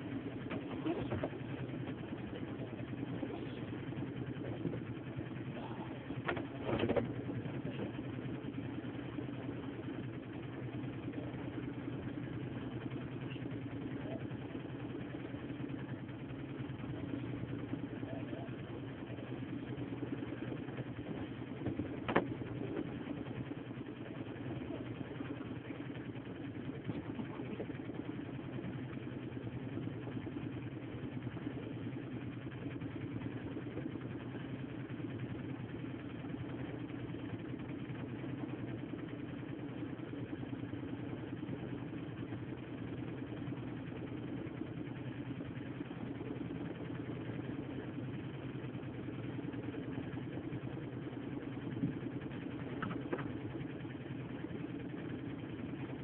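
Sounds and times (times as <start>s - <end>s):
boat engine humming: 0.0s - 56.0s.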